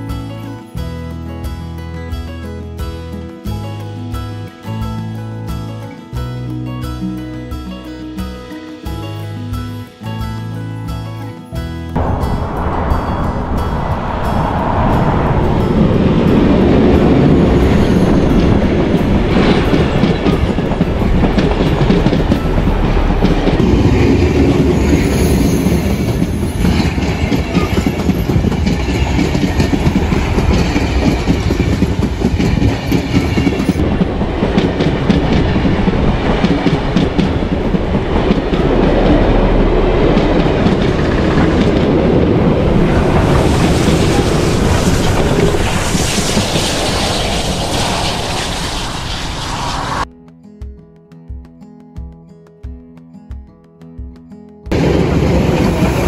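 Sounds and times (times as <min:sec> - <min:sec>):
diesel locomotive passing: 0:11.9 - 0:50.1, 0:54.7 - 0:56.0
wheels clicking over rail joints: 0:16.2 - 0:24.9, 0:26.1 - 0:47.1.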